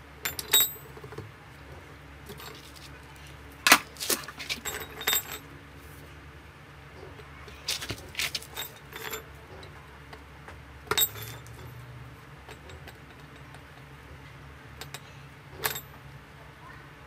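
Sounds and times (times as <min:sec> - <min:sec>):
low steady hum: 0:00.0 - 0:17.0
metal rods clinking: 0:02.2 - 0:05.5, 0:07.4 - 0:09.8, 0:10.9 - 0:13.9.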